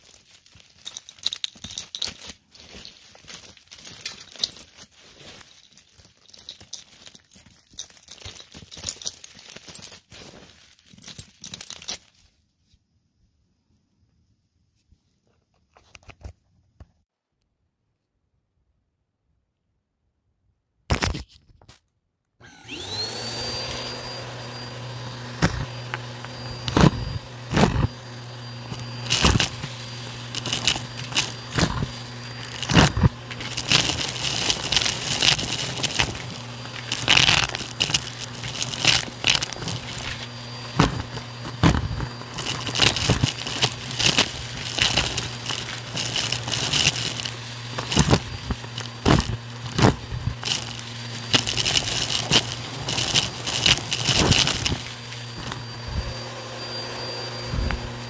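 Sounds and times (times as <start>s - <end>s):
vacuum cleaner motor whine: 22.4s - 58.0s
debris crackling being sucked up: 22.7s - 58.0s.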